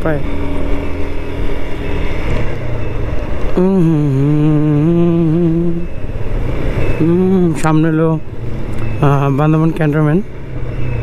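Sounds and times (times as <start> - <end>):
motorcycle engine rumble: 0.0 - 11.0
person humming: 3.5 - 6.0, 7.0 - 7.7.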